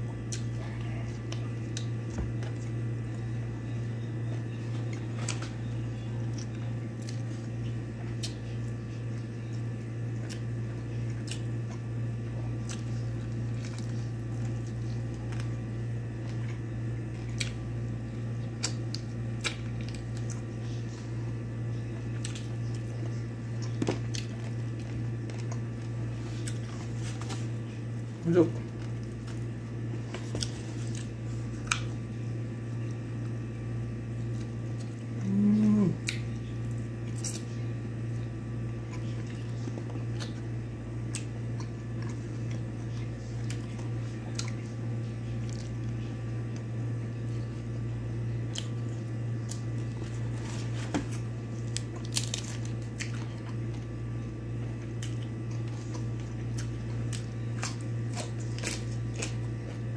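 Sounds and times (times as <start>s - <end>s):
person chewing food: 0.0s - 59.9s
steady low hum: 0.0s - 59.9s
person humming: 35.2s - 36.2s.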